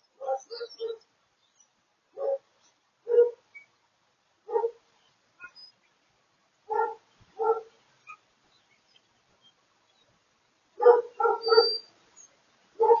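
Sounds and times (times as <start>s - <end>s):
dog barking: 0.2s - 1.0s, 2.2s - 2.4s, 3.1s - 3.4s, 4.5s - 4.8s, 6.7s - 7.8s, 10.8s - 11.9s, 12.8s - 13.0s.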